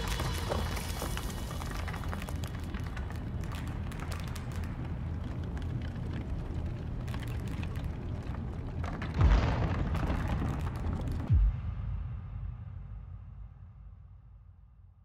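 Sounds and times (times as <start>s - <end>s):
heavy deep booms: 9.2s - 14.4s.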